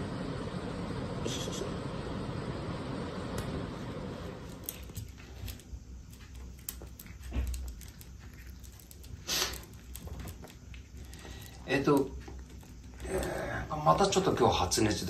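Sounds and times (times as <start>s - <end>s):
cat crunching dry kibble: 4.4s - 13.3s.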